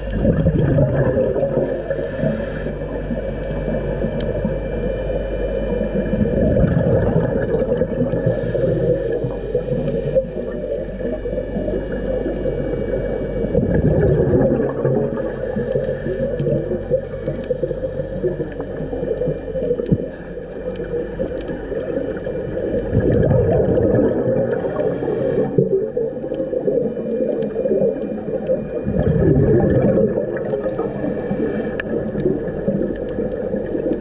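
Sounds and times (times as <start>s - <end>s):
exhaled bubbles gurgling: 0.0s - 34.0s
underwater wash: 0.0s - 34.0s
regulator hiss: 1.4s - 6.6s, 7.7s - 13.7s, 14.8s - 22.8s, 24.3s - 27.8s, 30.3s - 34.0s
faint clicks: 1.9s - 6.0s, 7.6s - 13.6s, 14.7s - 28.8s, 30.3s - 34.0s.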